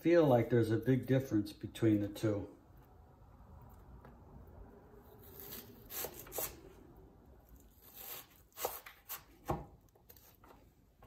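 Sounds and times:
knife chopping onion on board: 0:08.6 - 0:09.8.

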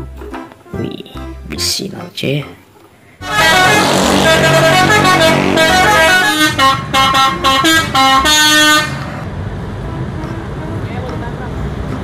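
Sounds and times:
musical air horn: 0:03.2 - 0:09.1.

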